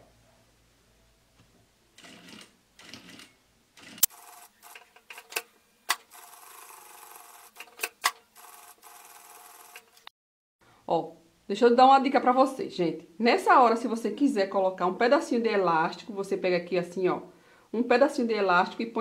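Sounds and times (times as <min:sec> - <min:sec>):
sewing machine stitching: 0:02.0 - 0:05.2.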